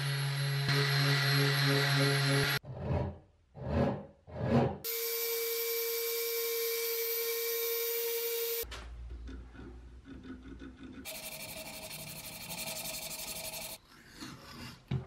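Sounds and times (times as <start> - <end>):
sandpaper rasping on wood: 11.1 - 13.8.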